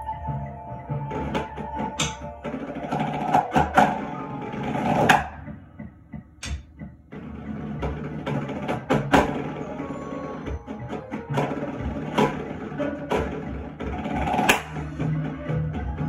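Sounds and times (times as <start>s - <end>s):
snare drum roll: 1.1s - 5.4s, 7.2s - 16.0s.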